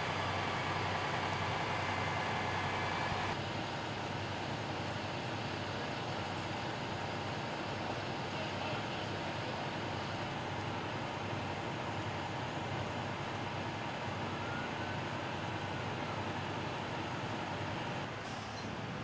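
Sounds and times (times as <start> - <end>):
fire engine mechanical drone: 0.0 - 19.0.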